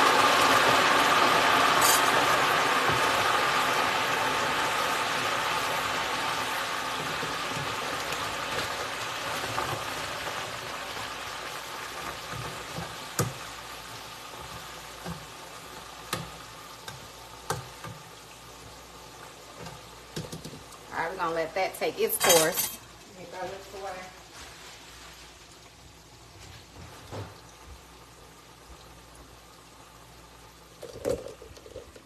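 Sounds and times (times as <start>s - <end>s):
oil bubbling and hissing: 0.0s - 22.2s, 22.8s - 32.0s
metal skimmer clinking on pot: 22.1s - 22.8s.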